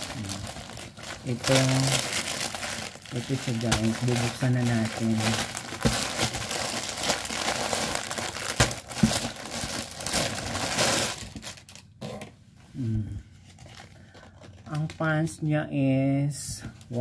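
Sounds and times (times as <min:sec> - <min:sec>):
plastic pouch crinkling: 0:00.0 - 0:12.0, 0:13.5 - 0:15.1.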